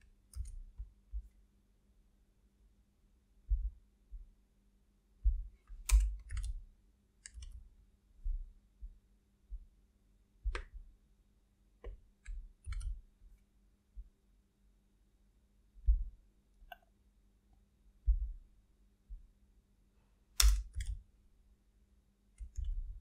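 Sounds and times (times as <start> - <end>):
faint steady hum: 0.0 - 23.0
computer mouse clicks: 0.3 - 0.9, 5.6 - 6.6, 7.2 - 7.6, 10.5 - 10.8, 11.8 - 13.0, 20.4 - 21.0, 22.4 - 22.9
keyboard keystrokes: 5.8 - 6.6, 7.2 - 7.6, 11.8 - 13.0, 20.4 - 21.0.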